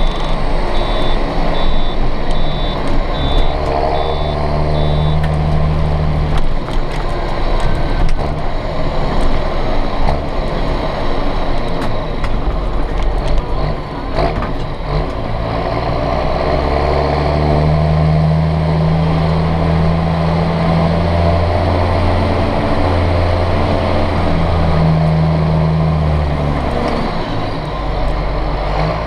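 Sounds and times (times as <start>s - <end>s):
tractor diesel engine drone: 0.0s - 29.0s.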